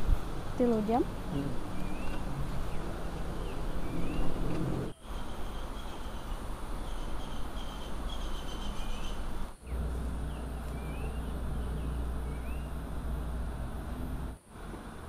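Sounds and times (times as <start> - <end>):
steady low rumble: 0.0 - 5.0, 9.2 - 15.0
steady background hiss: 0.0 - 15.0
high chirps of birds or insects: 0.5 - 14.4.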